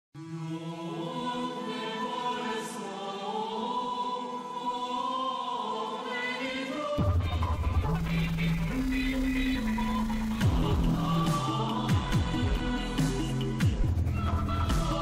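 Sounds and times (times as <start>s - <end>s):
choir singing sacred music: 0.2s - 15.0s.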